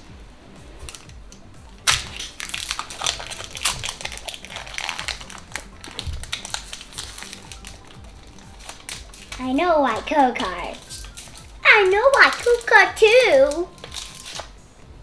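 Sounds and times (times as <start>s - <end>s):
card pack crackle: 1.9s - 14.5s
trading cards crinkling and rustling: 1.9s - 14.6s.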